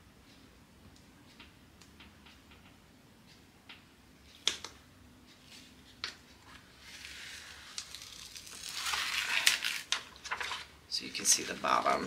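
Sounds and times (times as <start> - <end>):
plastic sheet rustling and crinkling: 6.9 - 10.7.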